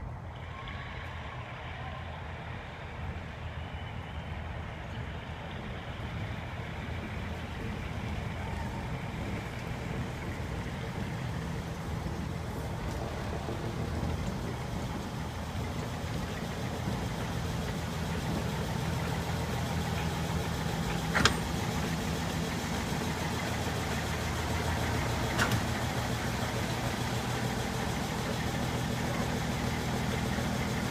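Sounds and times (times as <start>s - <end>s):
locomotive engine running: 0.0s - 30.9s.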